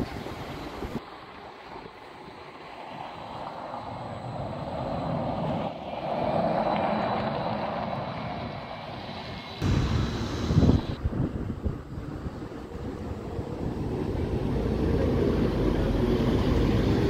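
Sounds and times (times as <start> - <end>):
faint high whine: 8.8 - 14.7.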